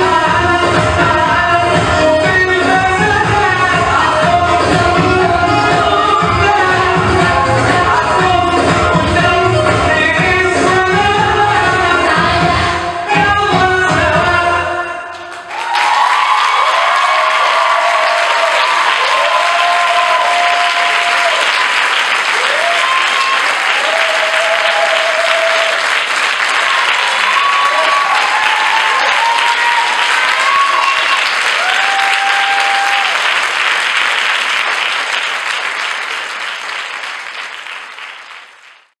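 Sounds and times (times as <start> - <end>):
audience applauding: 15.2 - 39.0
crowd calling out: 26.5 - 33.2.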